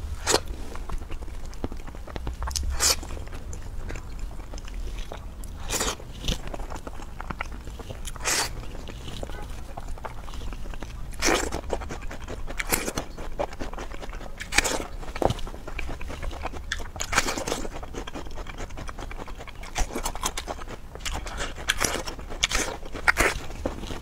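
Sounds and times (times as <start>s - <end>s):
person eating and chewing: 0.0s - 24.0s.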